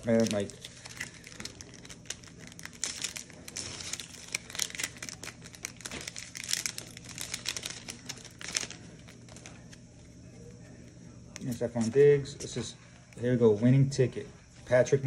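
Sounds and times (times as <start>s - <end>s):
wrapper crinkling and tearing: 0.0s - 9.8s.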